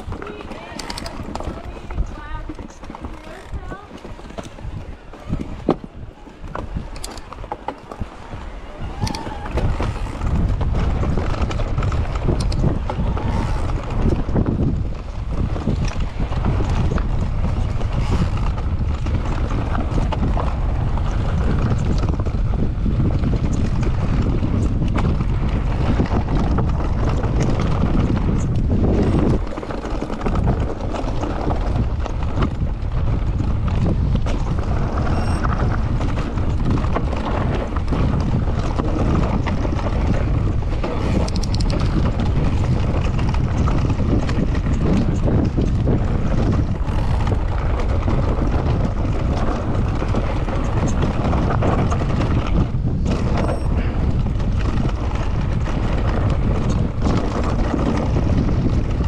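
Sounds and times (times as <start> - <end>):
bike knocking and rattling: 0.0 - 59.0
bike tyres on dirt and rock: 0.0 - 59.0
wind buffeting microphone: 0.0 - 59.0.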